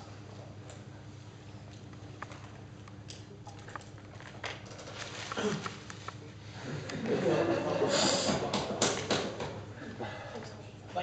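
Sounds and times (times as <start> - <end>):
low room hum: 0.0 - 11.0
paper rustling: 3.6 - 6.3.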